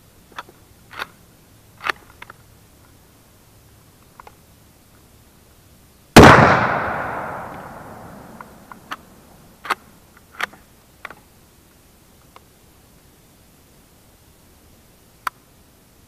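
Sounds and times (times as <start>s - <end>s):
rifle shot echoing: 6.2s - 9.2s
rifle reloading clicks: 6.2s - 9.8s.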